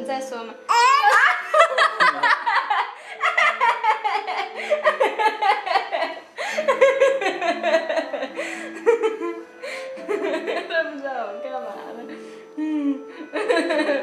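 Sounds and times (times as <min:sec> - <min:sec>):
background music with held notes: 0:00.0 - 0:14.0
people laughing and giggling: 0:00.9 - 0:10.8, 0:12.6 - 0:14.0.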